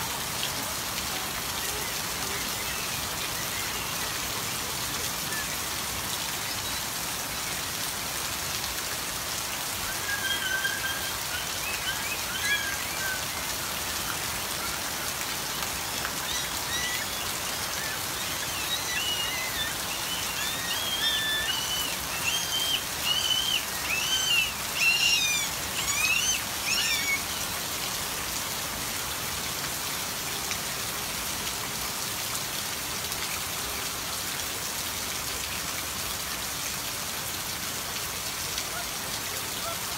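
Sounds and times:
rain falling on ground: 0:00.0 - 0:39.9
high-pitched squeaky calls: 0:16.2 - 0:27.4.

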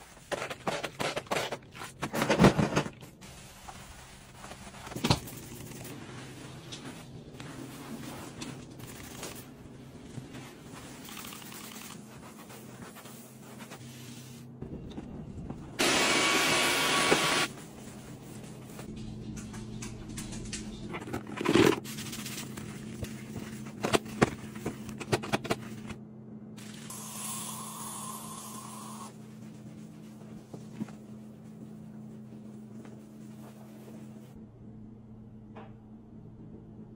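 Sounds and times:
cordless vacuum whirring: 0:15.8 - 0:17.5
steady low hum: 0:17.5 - 0:36.9
aerosol spray hissing: 0:26.9 - 0:29.1.

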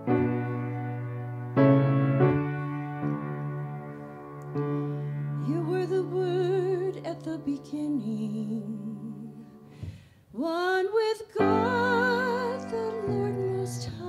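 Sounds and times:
person singing with vibrato: 0:05.4 - 0:09.7, 0:10.3 - 0:14.0.

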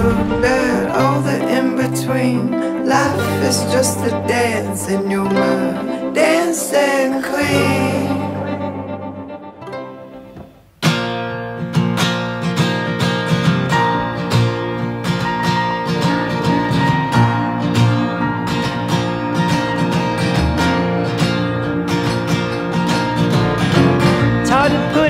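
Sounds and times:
strummed acoustic guitar music: 0:00.0 - 0:25.0.

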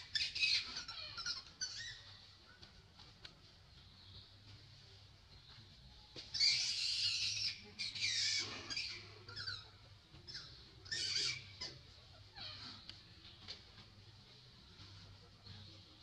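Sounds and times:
baby monkey crying: 0:00.0 - 0:02.1, 0:06.3 - 0:09.7, 0:10.3 - 0:12.9.

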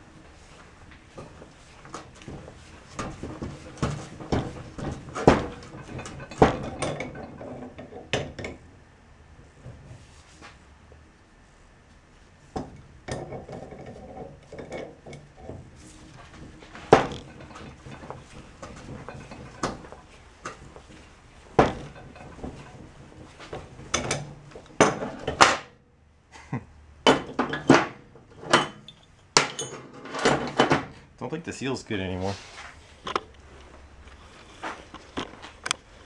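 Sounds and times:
metal clanks and knocks: 0:00.9 - 0:08.7, 0:12.5 - 0:25.7, 0:27.0 - 0:31.1.

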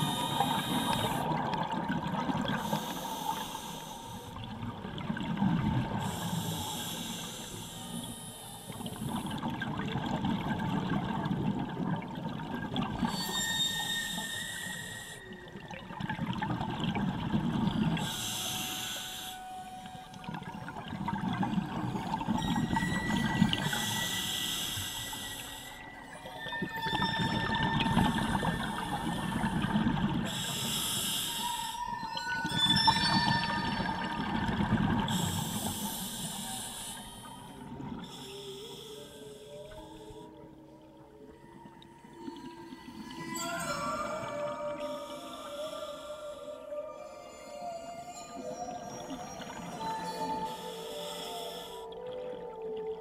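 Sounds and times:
regulator inhale hiss: 0:00.0 - 0:01.3, 0:02.5 - 0:04.4, 0:06.0 - 0:09.3, 0:13.6 - 0:15.4, 0:18.0 - 0:19.9, 0:23.6 - 0:25.9, 0:27.8 - 0:29.7, 0:30.3 - 0:31.9, 0:35.1 - 0:40.3, 0:50.3 - 0:51.9
exhaled bubbles rumbling: 0:00.0 - 0:02.6, 0:04.4 - 0:06.2, 0:08.8 - 0:13.3, 0:15.4 - 0:18.0, 0:20.2 - 0:24.0, 0:25.6 - 0:30.4, 0:31.9 - 0:35.8.

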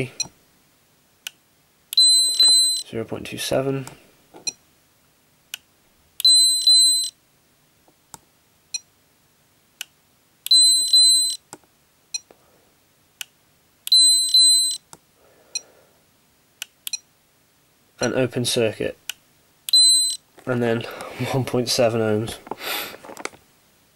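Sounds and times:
high meter beeps: 0:02.0 - 0:02.8, 0:06.2 - 0:07.2, 0:10.5 - 0:11.4, 0:13.9 - 0:14.8, 0:19.7 - 0:20.2.

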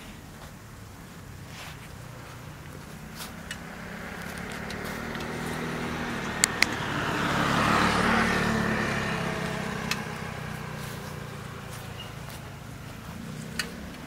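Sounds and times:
motorcycle passing: 0:00.0 - 0:14.0
sharp clicks: 0:06.2 - 0:06.8.

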